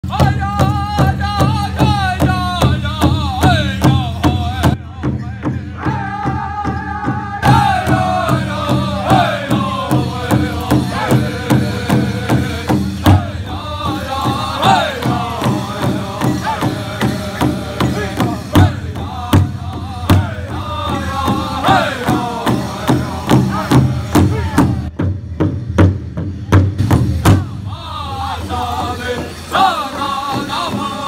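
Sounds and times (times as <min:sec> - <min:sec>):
group singing in unison: 0:00.0 - 0:24.8, 0:27.3 - 0:31.0
large drum beating: 0:00.0 - 0:27.8.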